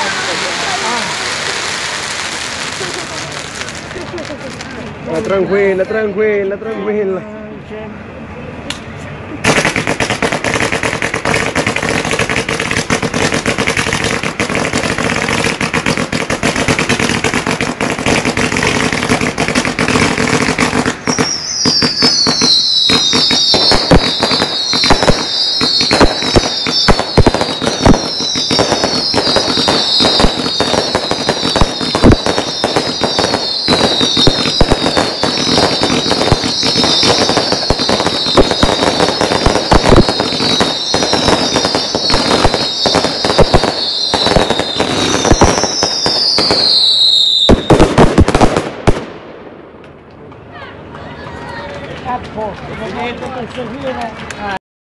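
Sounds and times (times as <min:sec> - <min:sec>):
fireworks crackling: 0:00.0 - 0:06.4, 0:08.8 - 0:54.6
fireworks cracks and bangs: 0:00.0 - 0:06.4, 0:08.7 - 0:54.6
fireworks fountains hissing: 0:00.0 - 0:06.4, 0:08.1 - 0:49.0
high falling whistles: 0:21.0 - 0:47.8.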